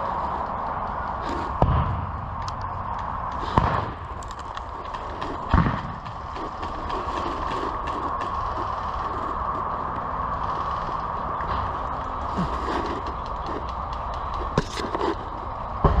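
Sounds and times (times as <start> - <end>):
steady outdoor hiss: 0.0 - 16.0.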